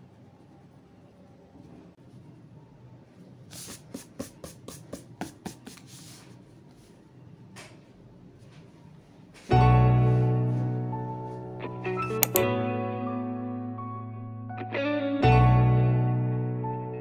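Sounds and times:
rubbing strokes on paper: 3.5 - 7.0
music with keyboard chords: 9.6 - 17.0.

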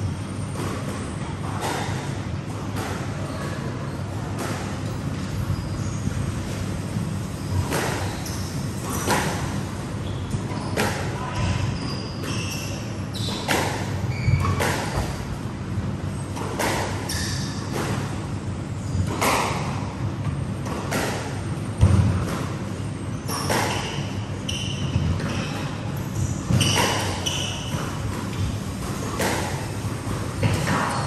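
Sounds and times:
squash ball hitting rackets and walls: 0.0 - 15.5, 16.2 - 31.0.

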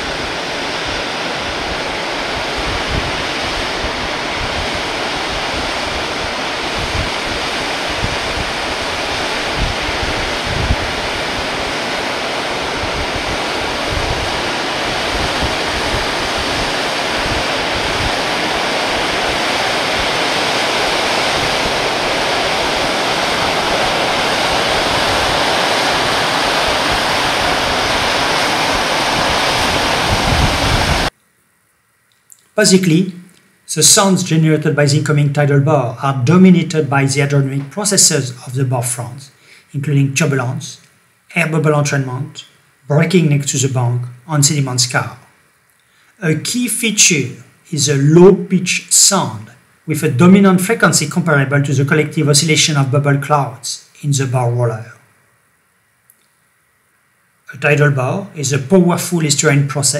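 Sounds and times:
turbulent breaking water: 0.0 - 31.1
wind buffeting microphone: 0.0 - 31.1.

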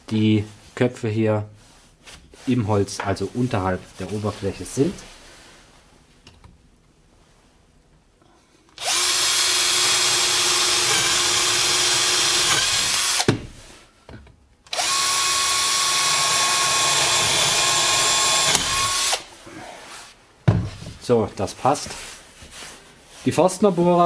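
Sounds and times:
drill boring through wood: 8.8 - 13.3, 14.7 - 19.3.

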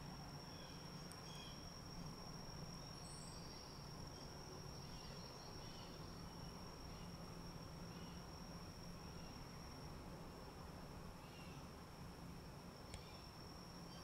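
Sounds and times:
low steady hum: 0.0 - 14.0
faint bird chirps: 0.4 - 2.1, 2.8 - 7.2, 7.8 - 8.3, 11.2 - 11.7.

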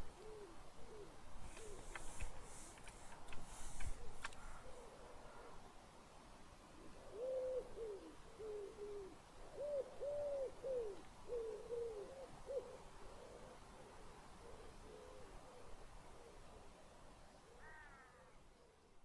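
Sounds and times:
bird hooting: 0.0 - 2.2, 6.8 - 13.6.

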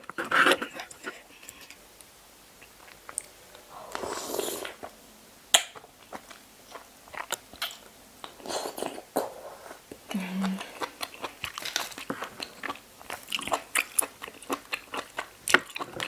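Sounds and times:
wet chewing: 5.6 - 8.4, 10.4 - 16.0.

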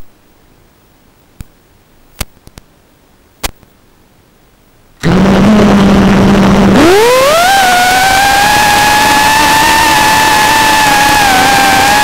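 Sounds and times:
drone motors humming: 5.0 - 12.0.

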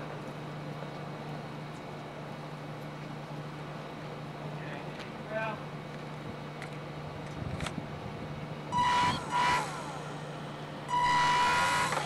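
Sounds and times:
propeller motor whining: 5.9 - 12.0.

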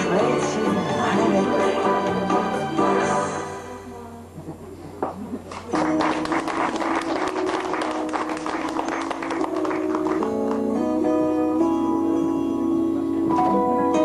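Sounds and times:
background music: 0.0 - 4.0, 5.8 - 14.0
audience clapping: 5.5 - 10.8.

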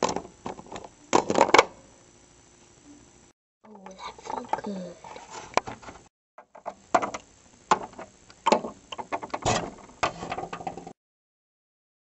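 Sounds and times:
plastic toy knocks and clicks: 6.4 - 9.4.

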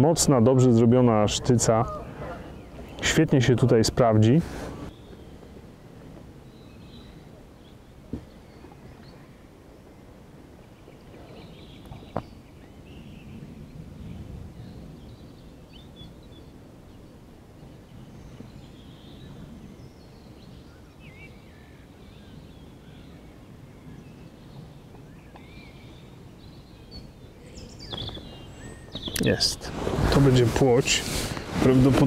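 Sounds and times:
bird chirps: 10.6 - 29.6.

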